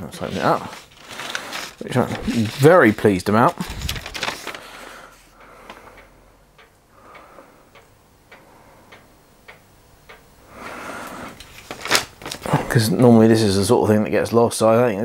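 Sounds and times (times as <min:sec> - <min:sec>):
paper booklet rustling: 0:00.0 - 0:05.3, 0:11.4 - 0:13.6
faint ticking: 0:04.2 - 0:13.4.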